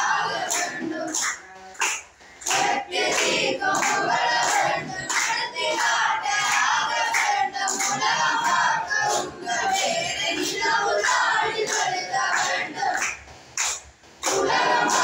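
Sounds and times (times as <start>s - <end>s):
boys singing in unison: 0.0s - 13.5s, 14.2s - 15.0s
hand clapping: 0.0s - 15.0s.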